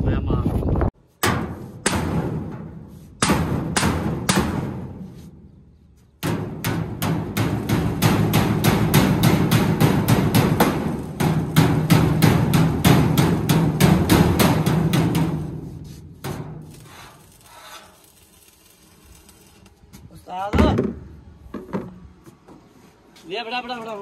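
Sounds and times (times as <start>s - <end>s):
hammer striking sheet steel: 1.2s - 5.4s, 6.2s - 19.6s.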